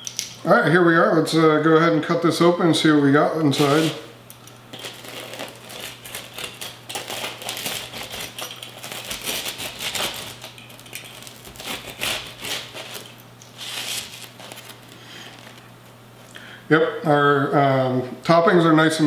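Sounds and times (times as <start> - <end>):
knife sawing through crust: 3.5 - 4.0, 4.7 - 10.6, 11.2 - 15.5.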